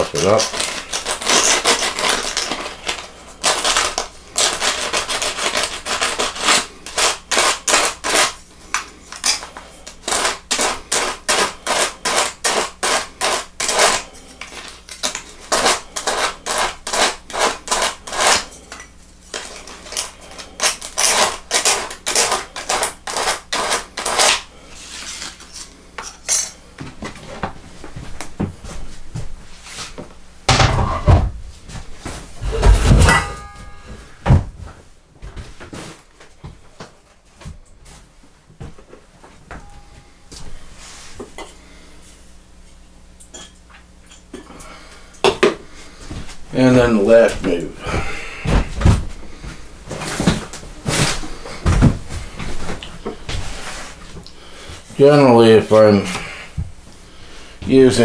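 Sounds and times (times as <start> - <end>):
part scraping on sandpaper: 0.0 - 8.4, 9.2 - 25.7.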